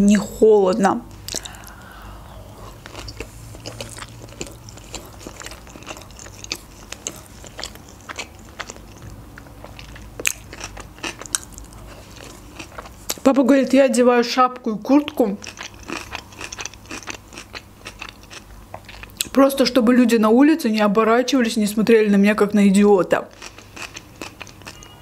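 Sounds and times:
woman chewing food: 1.1s - 13.3s, 15.0s - 19.3s, 23.3s - 25.0s.

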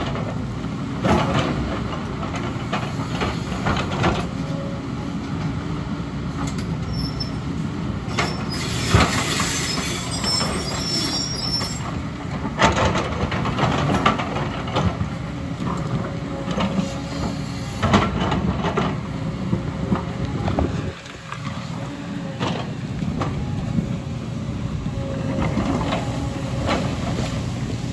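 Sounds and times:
diesel engine under load: 0.0s - 27.9s
high metallic squeal: 6.9s - 7.4s, 8.1s - 11.9s.

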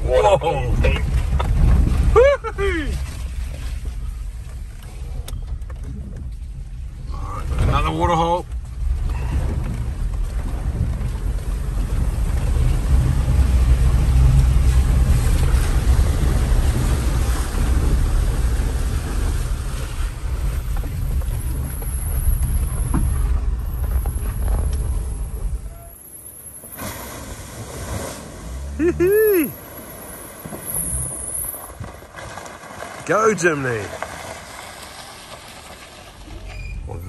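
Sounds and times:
vehicle engine rumbling: 0.0s - 37.0s
vehicle splashing through water: 7.4s - 37.0s.

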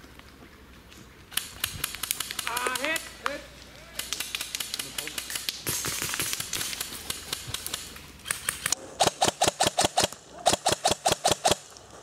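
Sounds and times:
airsoft gun firing: 4.0s - 11.7s.

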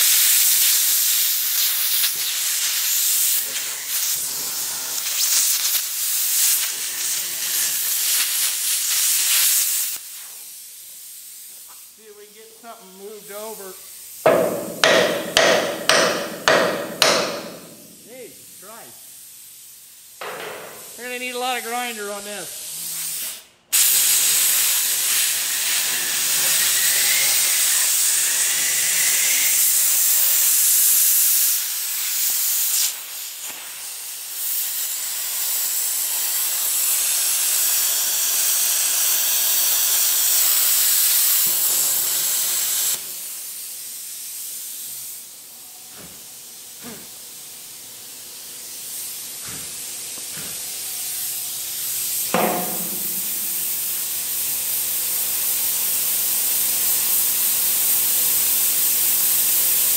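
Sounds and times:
metal-cutting torch hissing: 0.0s - 45.6s, 46.8s - 59.9s.

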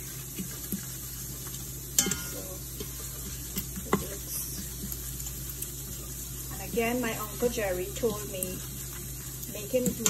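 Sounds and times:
spices sizzling in oil: 0.0s - 10.0s
spoon knocking on pot: 2.0s - 2.4s.

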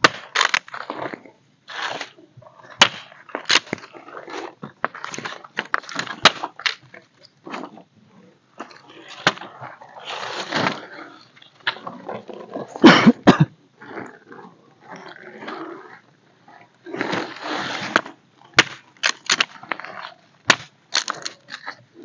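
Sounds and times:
wooden sticks clattering: 17.8s - 19.8s, 20.5s - 21.7s.

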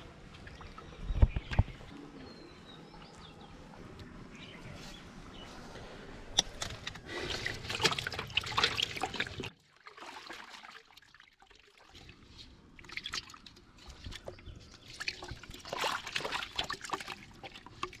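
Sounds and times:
fish splashing in a metal basin: 7.2s - 18.0s.

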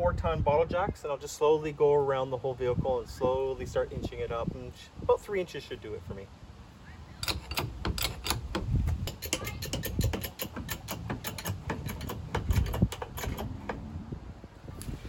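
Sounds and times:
hydraulic jack pumping clicks: 7.2s - 13.8s.

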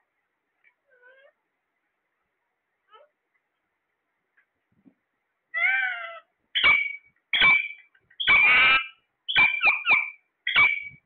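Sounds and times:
parakeets screeching: 5.6s - 11.0s.

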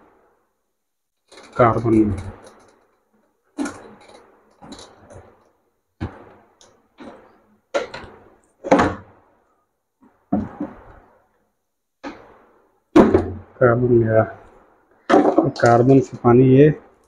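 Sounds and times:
plastic clacks and thunks: 6.0s - 9.2s, 10.0s - 11.1s, 12.0s - 13.5s, 15.1s - 15.8s.

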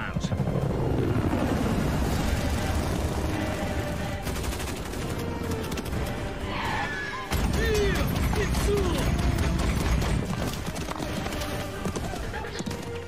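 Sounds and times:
orchestral score: 0.2s - 13.0s
rapid machine-gun fire: 2.1s - 6.1s, 7.3s - 12.6s.

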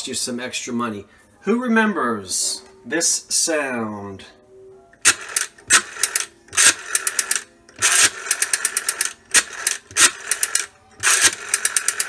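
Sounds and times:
rotary dial clicks: 5.0s - 12.0s
rotary phone dial whirring: 5.0s - 12.0s.

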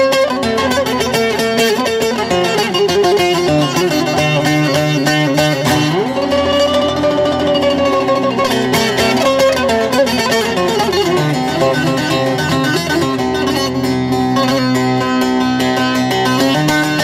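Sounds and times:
amplified electric saz playing folk: 0.0s - 17.0s.

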